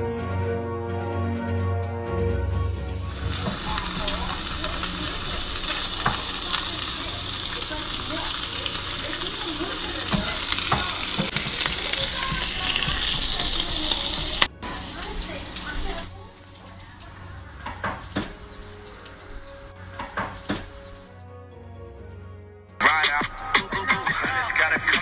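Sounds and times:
bacon sizzling and popping: 0:03.1 - 0:21.1.

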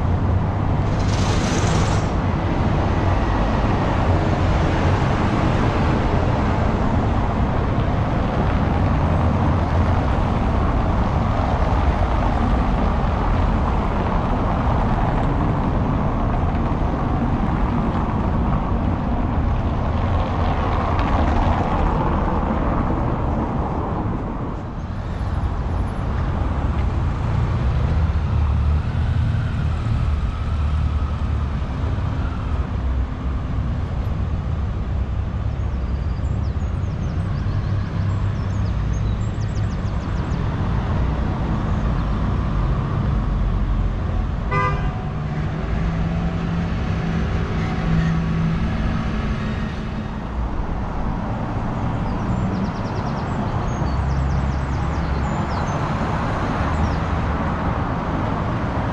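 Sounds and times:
traffic rumble: 0:00.0 - 0:58.9
vehicle horn toot: 0:44.5 - 0:45.3.

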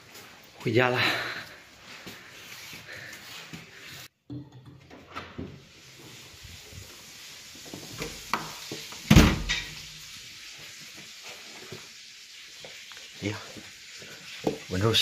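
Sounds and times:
door shutting with deep thud: 0:09.1 - 0:09.7.

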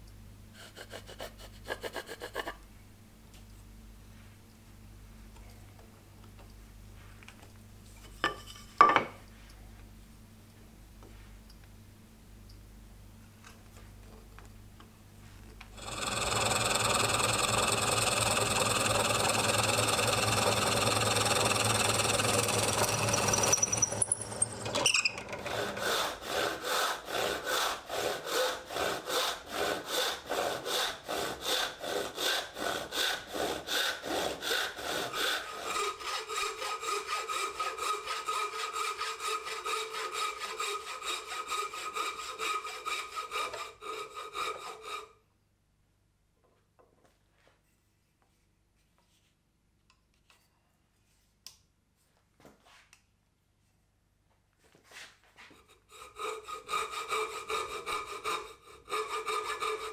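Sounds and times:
motor winding down whine: 0:15.8 - 0:25.8
handsaw cutting wood: 0:15.8 - 0:45.1, 0:55.6 - 0:59.9
bow saw cutting wood: 0:15.8 - 0:45.2, 0:55.6 - 0:59.9.

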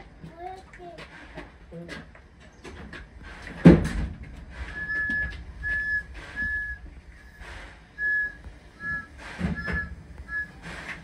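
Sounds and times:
low rumble: 0:04.0 - 0:11.0
high-pitched whistle blasts: 0:04.7 - 0:07.4, 0:08.0 - 0:10.6.

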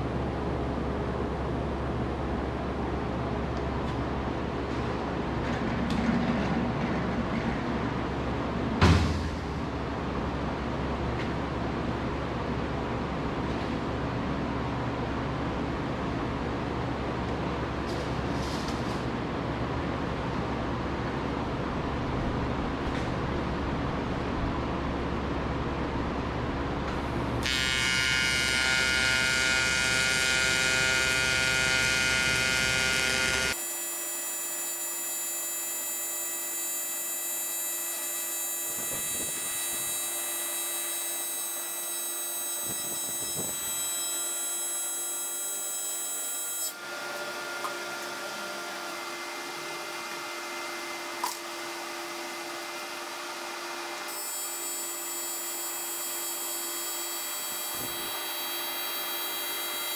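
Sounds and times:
welding arc buzzing: 0:27.4 - 0:46.8, 0:54.1 - 0:59.9.

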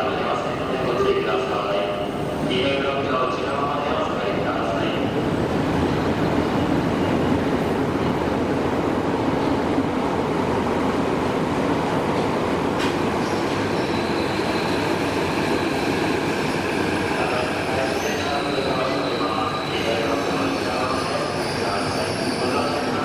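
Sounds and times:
subway train running: 0:00.0 - 0:23.0.

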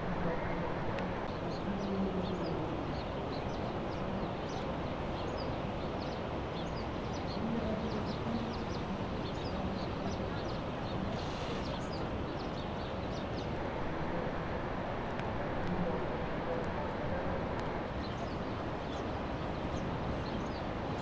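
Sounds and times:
wind: 0:00.0 - 0:21.0
small birds chirping: 0:01.2 - 0:13.6, 0:17.8 - 0:21.0.

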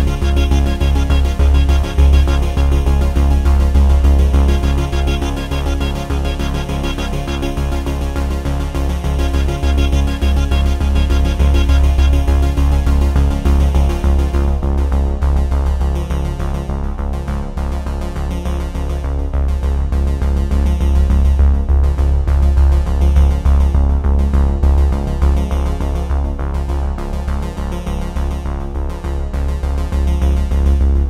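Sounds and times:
electronic music with heavy bass beat: 0:00.0 - 0:16.7.

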